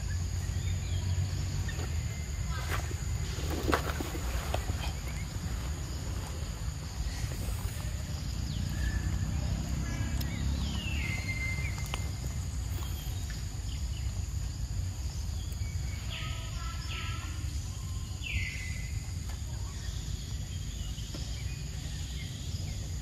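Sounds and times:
bird calling: 0.0 - 14.2.

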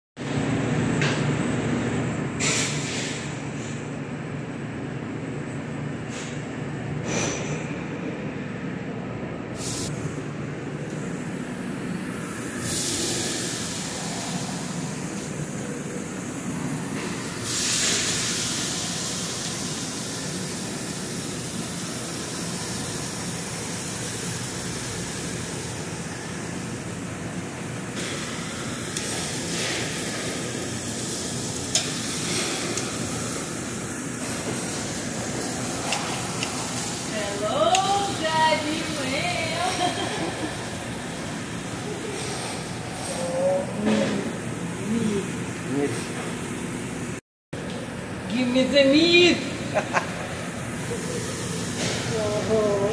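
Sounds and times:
kitchen roar: 0.2 - 52.9
steaks sizzling on a grill: 17.5 - 21.2.

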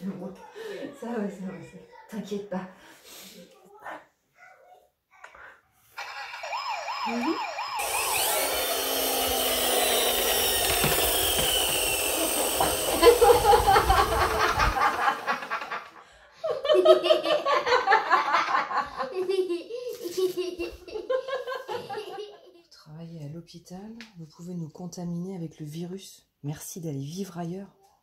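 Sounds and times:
siren wailing: 6.0 - 11.6
people laughing: 12.2 - 22.6.

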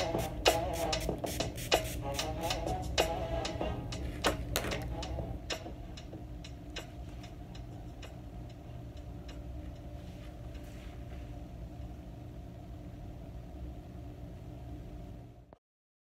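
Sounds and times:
soft background music: 0.0 - 11.5.

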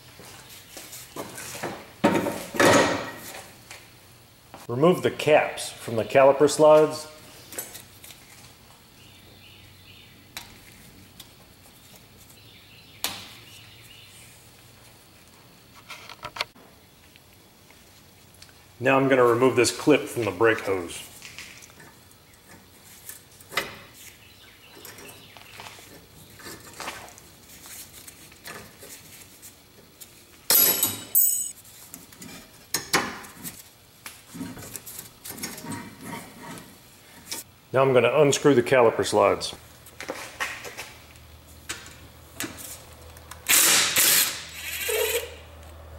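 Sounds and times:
pliers clinking and scraping metal: 30.5 - 31.6
sharp ringing metal clinks: 30.5 - 31.6.

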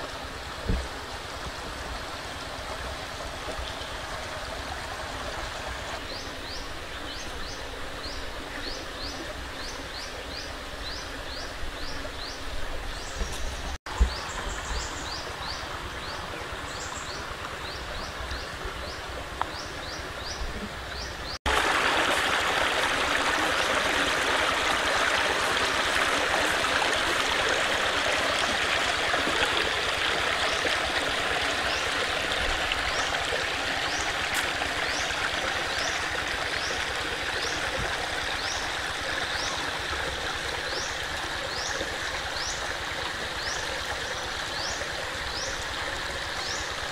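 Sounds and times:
water running over rocks: 0.0 - 9.9, 21.4 - 46.9.

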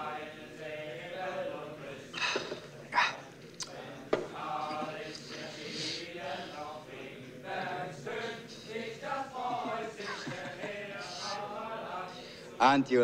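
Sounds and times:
male voices talking and half-singing: 0.0 - 13.0.

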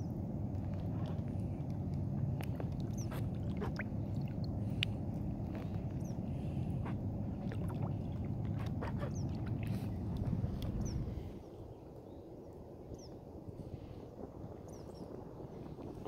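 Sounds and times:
water lapping: 0.0 - 11.5
small splashes and drips: 0.4 - 11.0.

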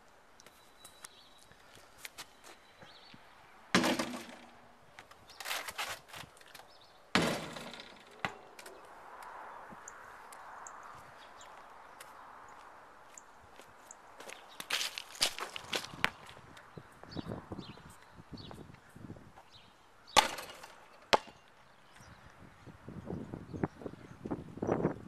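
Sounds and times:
basketball hitting hoop: 3.7 - 4.5, 7.1 - 8.7, 20.2 - 21.4.

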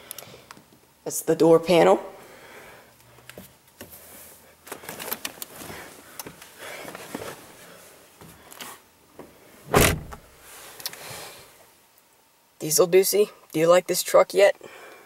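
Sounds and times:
loud thump: 9.7 - 10.3.

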